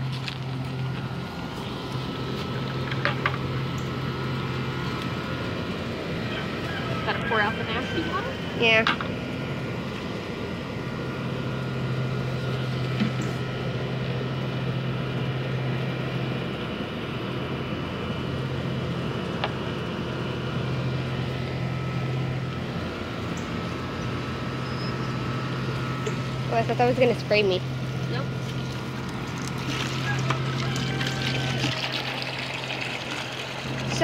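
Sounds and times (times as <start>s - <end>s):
low hum: 0.0s - 34.0s
hose water into plastic bucket: 28.4s - 34.0s.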